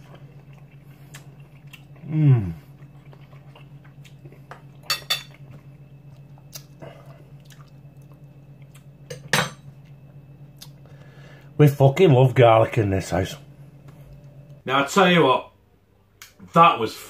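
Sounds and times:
low hum: 0.0s - 14.7s.

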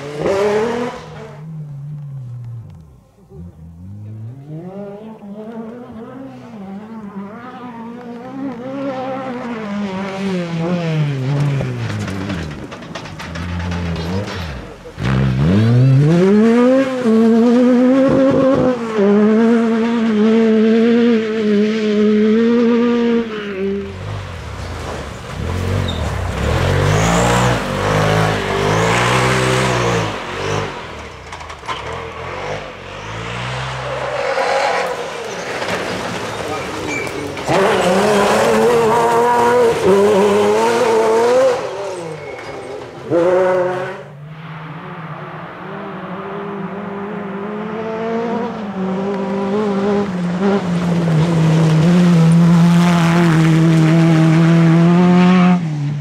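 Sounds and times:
buggy engine revving hard: 0.0s - 1.5s, 3.4s - 12.6s, 13.5s - 36.4s, 37.3s - 44.1s, 46.4s - 56.0s
second rally car engine: 0.0s - 56.0s.

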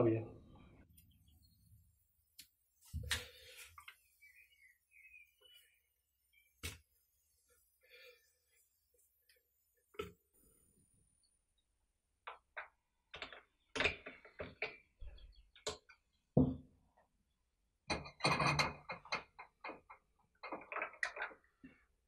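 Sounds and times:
small clicks and knocks of parts: 12.2s - 16.2s, 18.0s - 21.8s.

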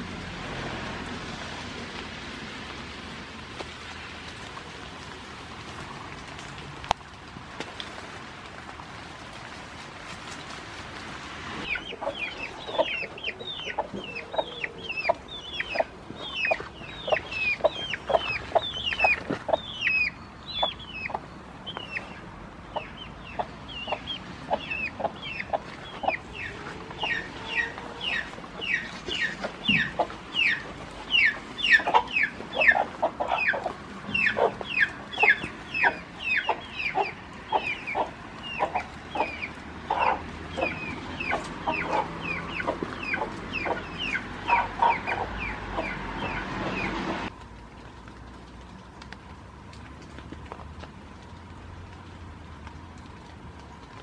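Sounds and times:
chicks peeping: 11.6s - 47.2s
hen clucking: 11.6s - 47.3s.

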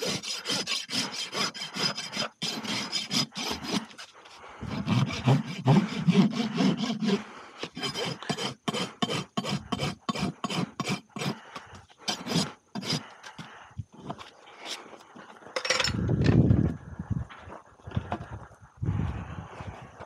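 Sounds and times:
rasp filing hoof: 0.0s - 14.8s.

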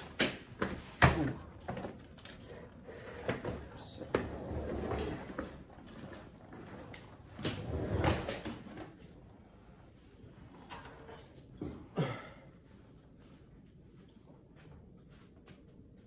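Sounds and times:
suitcase rolling on tiled floor: 0.0s - 11.5s
footsteps: 12.8s - 16.0s.

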